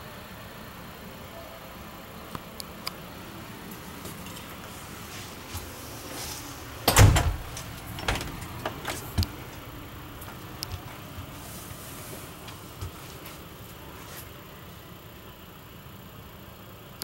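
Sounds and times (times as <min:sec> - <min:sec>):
light door clicks: 0:06.8 - 0:09.6
door knock and rattle: 0:06.9 - 0:09.1.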